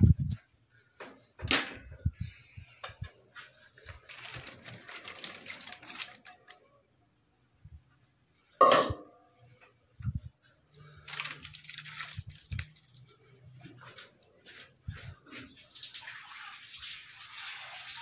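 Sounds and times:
spatula knocking metal pot: 8.6s - 9.1s.

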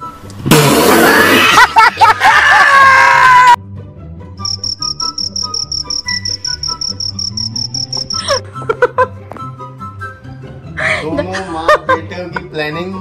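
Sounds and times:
cricket chirping trill: 4.4s - 8.4s.

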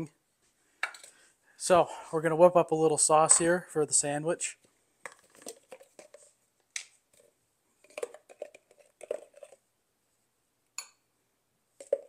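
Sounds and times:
kitchen items clicking and tapping: 7.8s - 9.6s, 11.8s - 12.0s.

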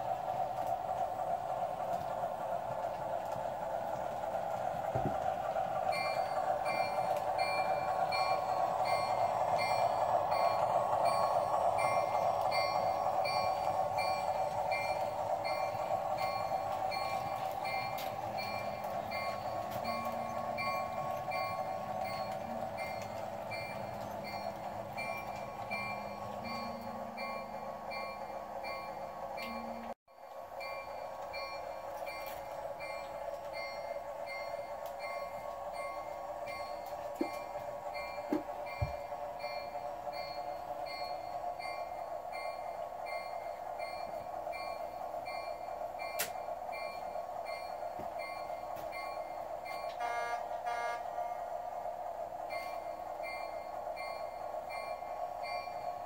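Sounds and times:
model train rolling on track: 0.0s - 56.0s
train bell ringing: 0.0s - 56.0s
bell ringing: 5.9s - 29.9s.

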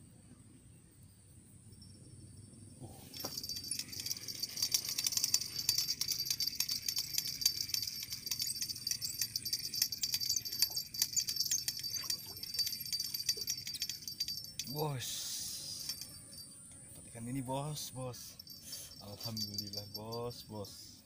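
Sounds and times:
fishing reel ticking rattle: 3.2s - 16.7s, 18.4s - 20.7s.

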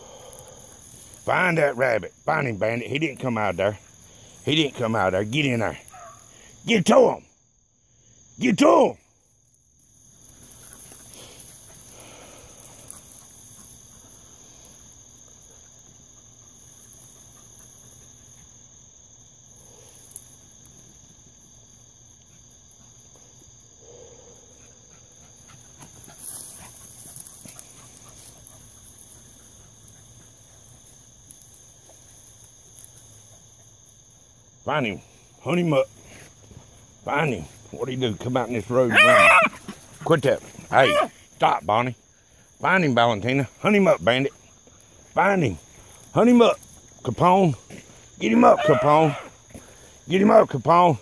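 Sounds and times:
high-pitched insect chorus: 0.0s - 51.0s
brush rustling: 25.4s - 41.4s
faint dog yelps: 38.9s - 39.6s, 40.7s - 41.2s, 48.4s - 49.4s.

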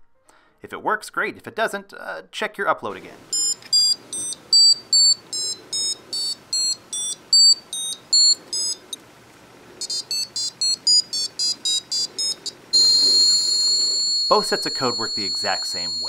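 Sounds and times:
steady high tone: 3.2s - 9.0s, 9.8s - 16.0s
short high electronic beeps: 3.4s - 8.9s, 9.8s - 16.0s.

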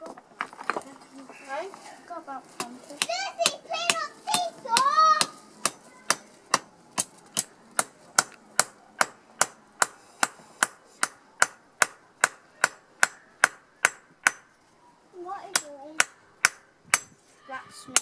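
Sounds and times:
hammer striking steel: 3.0s - 14.6s, 15.5s - 17.2s.

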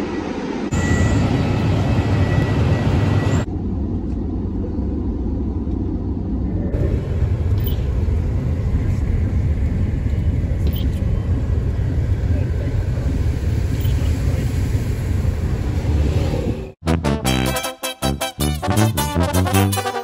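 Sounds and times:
airliner cabin rumble: 0.0s - 16.8s
jet and ground vehicle noise: 0.0s - 16.8s
car interior road rumble: 3.6s - 16.6s.

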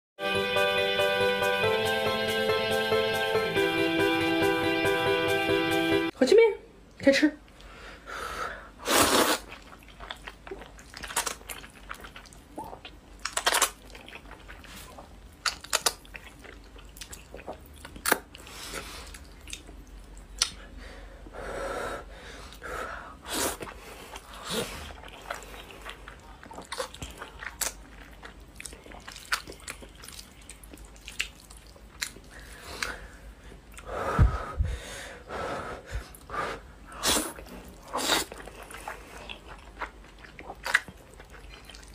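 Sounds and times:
person slurping noodles: 8.8s - 9.6s, 23.2s - 25.5s, 36.5s - 39.2s
wet mouth smacks and clicks: 20.3s - 20.6s.

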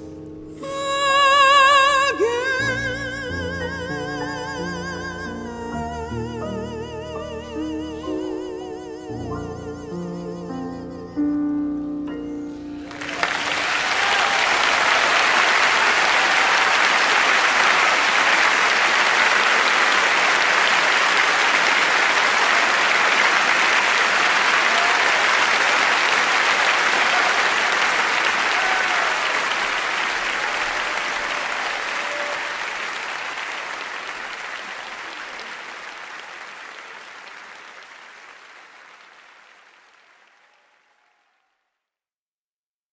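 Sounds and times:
piano notes: 0.0s - 14.0s
audience applauding: 12.8s - 41.6s.

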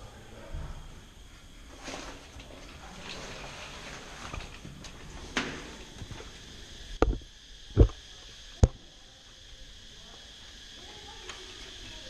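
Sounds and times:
sharp knocks: 7.8s - 8.0s.

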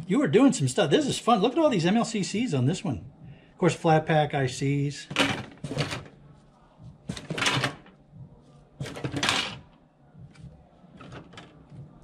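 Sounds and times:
circuit boards clattering: 5.1s - 6.1s, 7.1s - 7.9s, 8.8s - 9.7s.

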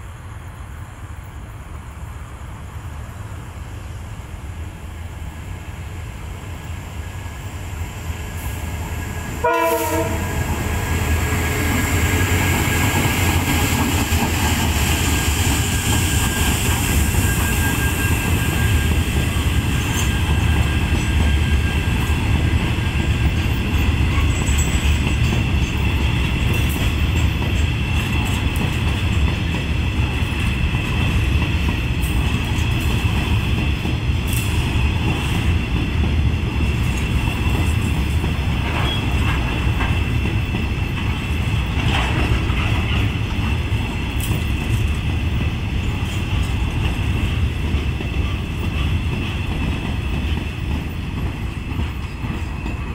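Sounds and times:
train wheels rumbling on rails: 0.0s - 52.9s.

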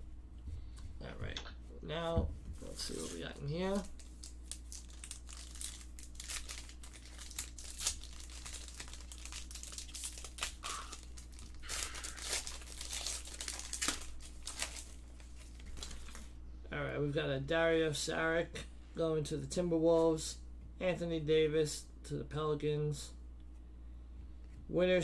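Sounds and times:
steady low hum: 0.0s - 25.0s
foil wrapper tearing and crinkling: 3.8s - 16.3s.

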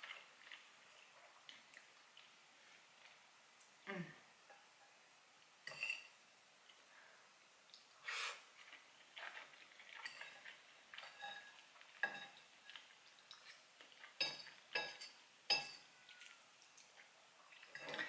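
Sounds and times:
fork clinking on ceramic bowl: 5.7s - 6.1s, 10.1s - 12.4s, 14.2s - 15.9s.

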